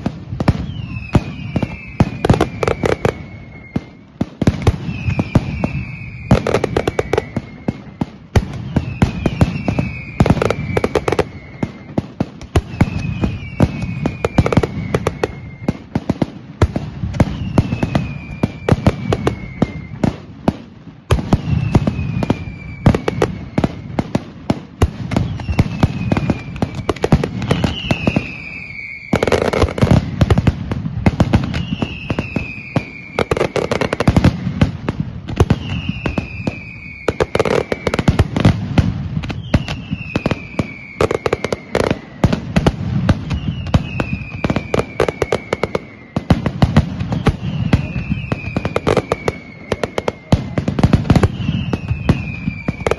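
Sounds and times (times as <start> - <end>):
firecracker bangs: 0.0 - 52.9
whistling fireworks: 0.0 - 52.9.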